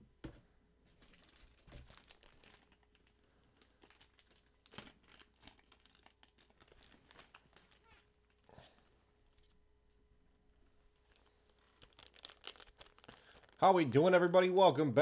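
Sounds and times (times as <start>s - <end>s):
wrapping crinkling: 0.9s - 9.6s, 10.9s - 14.4s.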